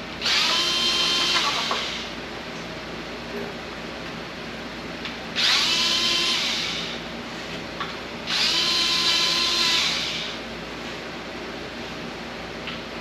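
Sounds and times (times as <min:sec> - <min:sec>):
cordless drill whirring: 0:00.2 - 0:02.1, 0:05.4 - 0:07.0, 0:08.3 - 0:10.4.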